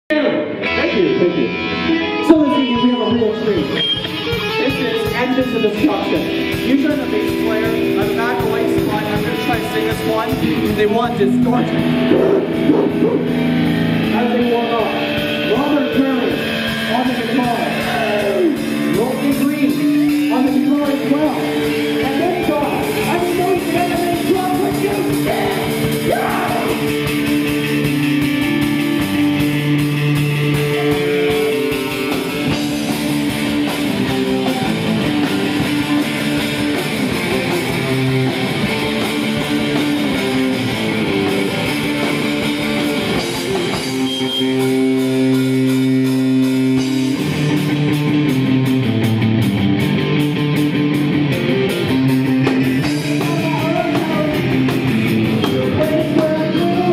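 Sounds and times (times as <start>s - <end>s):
rock band playing: 0.1s - 56.9s
man singing: 22.3s - 27.0s, 55.4s - 56.9s.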